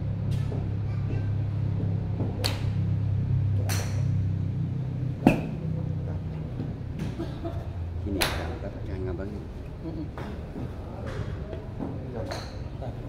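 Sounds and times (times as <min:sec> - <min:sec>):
steady low hum: 0:00.0 - 0:13.0
golf club striking ball: 0:02.2 - 0:02.8, 0:03.6 - 0:04.2, 0:05.2 - 0:05.6.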